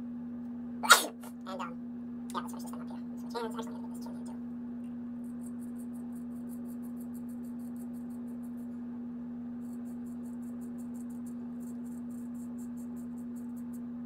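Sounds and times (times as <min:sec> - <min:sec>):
razor scraping stubble: 0:05.2 - 0:08.8, 0:09.6 - 0:13.9.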